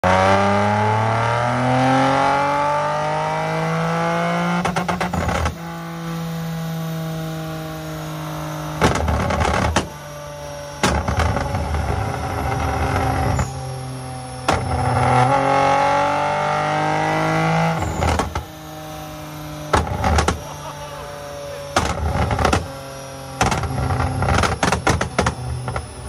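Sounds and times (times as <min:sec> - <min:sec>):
car engine revving: 0:00.0 - 0:26.0
exhaust popping and crackling: 0:04.6 - 0:05.7, 0:08.8 - 0:10.0, 0:10.8 - 0:15.4, 0:17.7 - 0:18.5, 0:19.7 - 0:22.8, 0:23.4 - 0:26.0.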